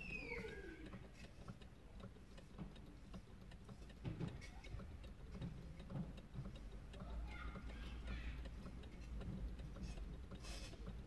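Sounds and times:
faint ticking of rocking figures: 0.0s - 11.0s.

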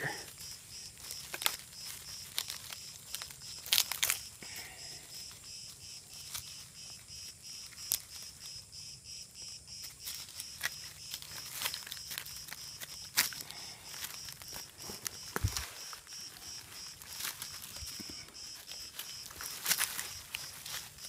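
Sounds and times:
insect chirping: 0.0s - 21.0s
rotten wood cracking by hand: 0.2s - 4.7s, 9.9s - 21.0s.

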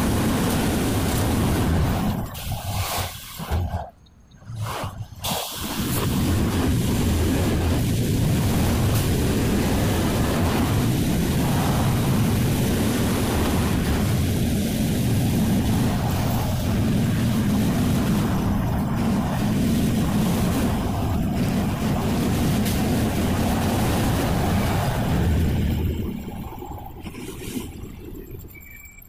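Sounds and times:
bus engine and tyres rumbling: 0.0s - 29.0s.

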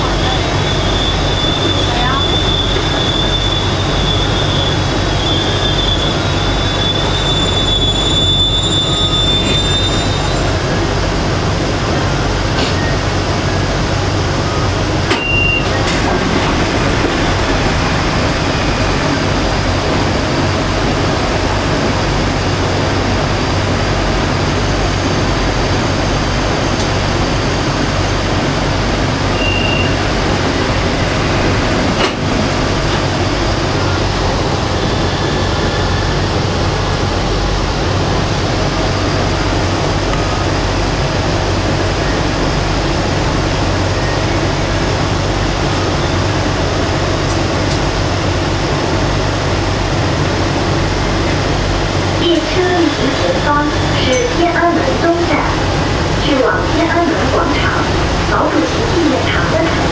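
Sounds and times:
rumble of train wheels on rail: 0.0s - 59.9s
high-pitched wheel squeal: 0.3s - 10.6s, 29.3s - 30.2s.

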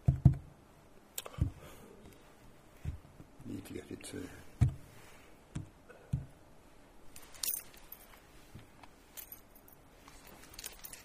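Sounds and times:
handling clicks and rustles: 7.1s - 11.0s.

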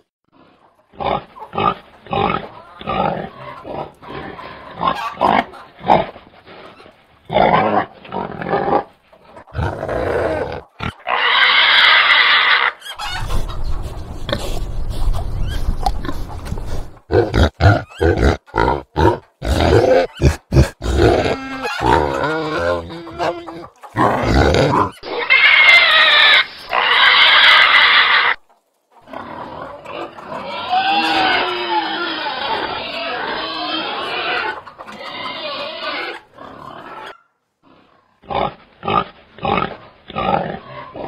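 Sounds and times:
pigs grunting: 0.3s - 13.4s, 14.1s - 28.4s, 29.0s - 41.0s
pig squealing: 1.0s - 8.9s, 9.5s - 13.4s, 17.1s - 28.4s, 29.1s - 41.0s.

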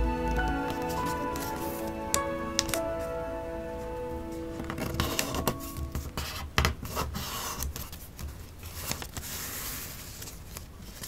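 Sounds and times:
paper crackling and rustling: 4.6s - 11.0s.

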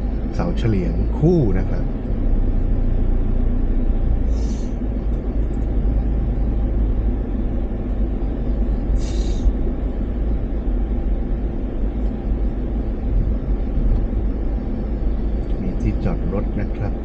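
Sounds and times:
vehicle engine rumble: 0.0s - 17.0s
brief hiss: 9.0s - 9.5s.

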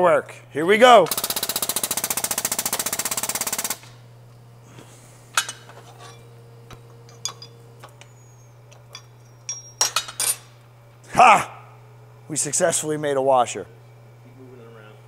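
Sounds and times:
hydraulic pump rapid pulsing: 1.1s - 3.8s
low steady hum: 4.0s - 15.0s
light metallic clinks and taps: 7.1s - 8.1s, 8.7s - 10.1s.

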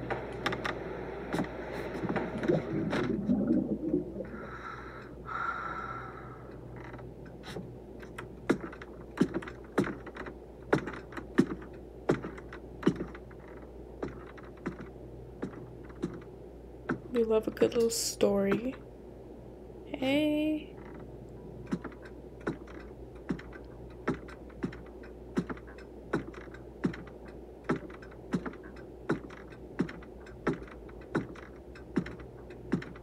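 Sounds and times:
sharp clicks and knocks: 6.8s - 17.9s, 20.8s - 33.0s.

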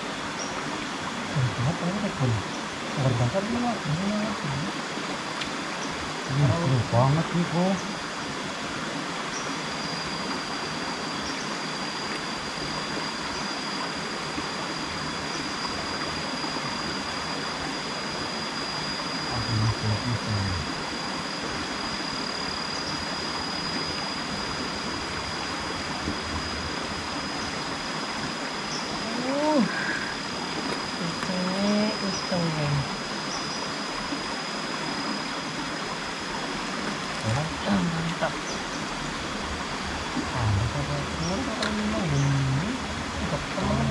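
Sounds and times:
thin high-pitched tone: 18.3s - 20.7s.

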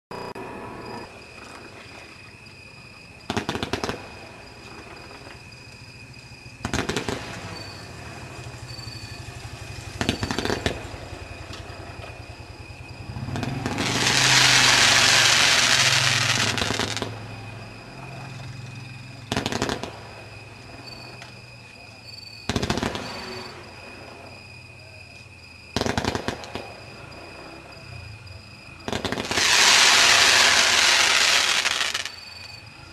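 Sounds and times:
fireworks crackling: 3.2s - 5.4s, 6.5s - 12.4s, 13.0s - 17.3s, 19.2s - 21.2s, 22.4s - 24.3s, 25.7s - 27.3s, 28.8s - 32.4s
fireworks pops and bangs: 3.2s - 5.4s, 6.6s - 7.8s, 10.0s - 12.2s, 13.3s - 17.2s, 19.3s - 20.2s, 22.4s - 23.5s, 25.7s - 26.8s, 28.8s - 32.2s.

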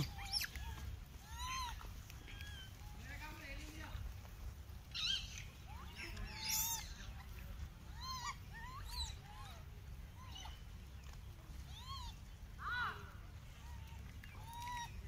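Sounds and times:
shrill monkey cries: 0.0s - 2.8s, 4.9s - 10.6s, 11.6s - 12.2s, 14.3s - 15.0s
monkeys calling: 0.0s - 3.0s, 4.8s - 15.0s.

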